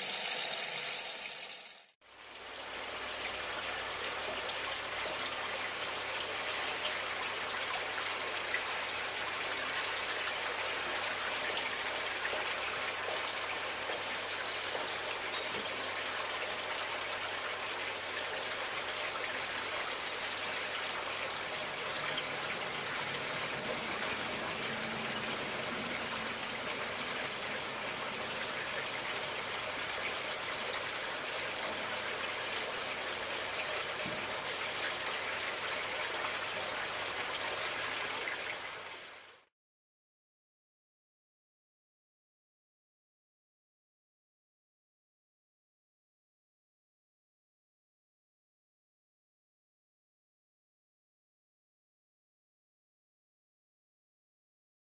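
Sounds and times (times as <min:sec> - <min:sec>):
running water hiss: 0:00.0 - 0:39.2.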